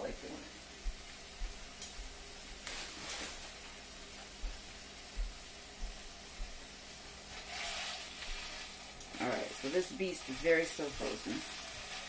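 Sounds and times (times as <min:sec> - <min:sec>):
soft low thumps: 0:04.4 - 0:06.6
meat sizzling in oil: 0:06.7 - 0:12.0.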